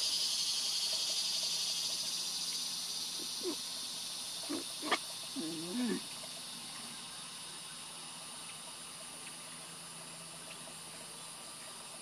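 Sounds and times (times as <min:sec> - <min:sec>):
high-pitched outdoor hiss: 0:00.0 - 0:12.0.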